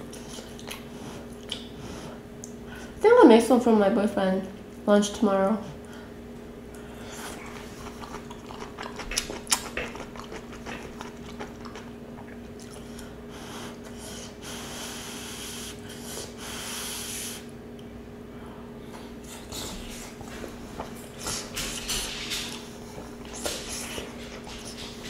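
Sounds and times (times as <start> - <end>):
chewing and slurping pasta: 0.0 - 2.0, 6.8 - 14.7, 19.2 - 25.0
faint steady hum: 0.0 - 25.0.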